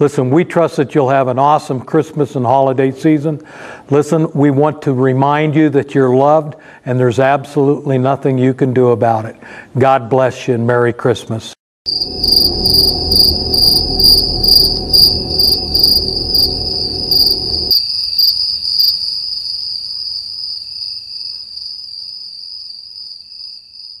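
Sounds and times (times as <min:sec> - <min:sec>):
insects chirping: 0:11.9 - 0:24.0
low background hum: 0:12.2 - 0:17.7.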